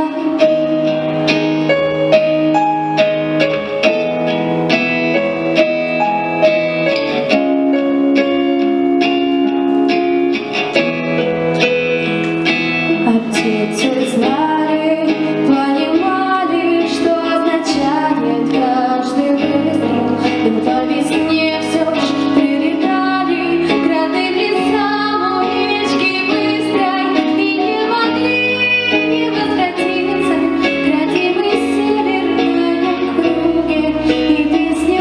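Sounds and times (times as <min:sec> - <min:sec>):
girl singing into a microphone: 0:00.0 - 0:01.1, 0:12.9 - 0:35.0
backing track with picked notes: 0:00.0 - 0:35.0.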